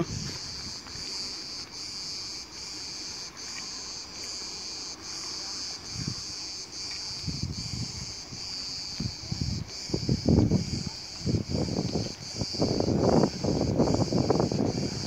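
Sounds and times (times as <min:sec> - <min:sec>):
wind buffeting microphone: 0:00.0 - 0:02.4, 0:05.7 - 0:15.0
cicadas chorus: 0:00.0 - 0:15.0.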